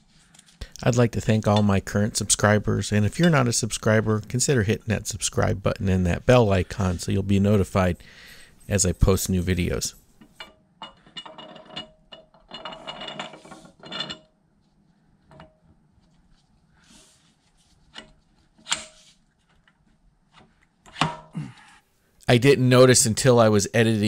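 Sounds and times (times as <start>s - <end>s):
metal screw threads scraping: 10.2s - 14.4s.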